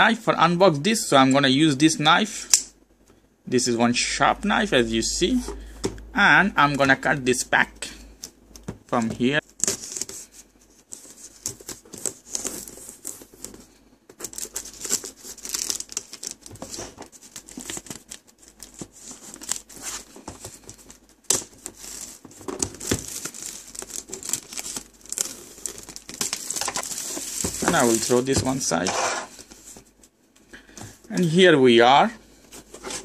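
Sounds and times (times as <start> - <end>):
plastic wrap crinkling and tearing: 14.2 - 30.1.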